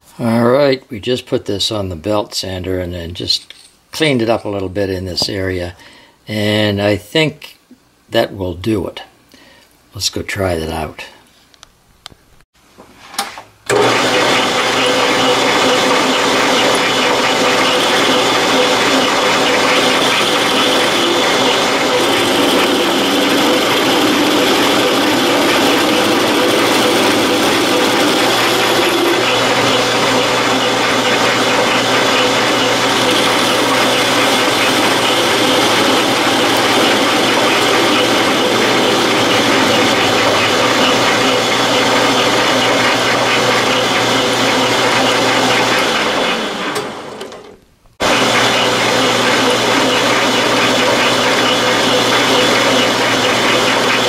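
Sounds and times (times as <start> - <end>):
lathe cutting metal: 13.7 - 47.2, 48.0 - 54.0
lathe drive hum: 13.7 - 54.0.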